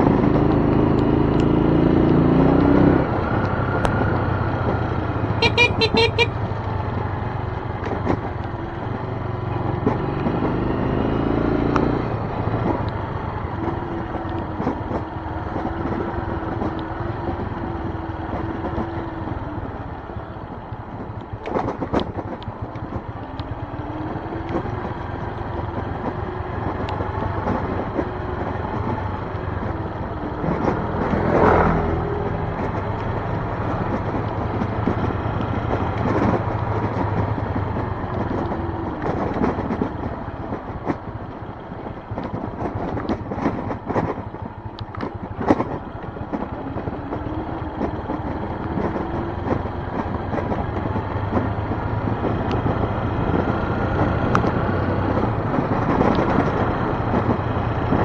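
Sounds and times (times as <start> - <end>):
motorcycle engine running: 0.0 - 58.0
horn toot: 5.4 - 6.4.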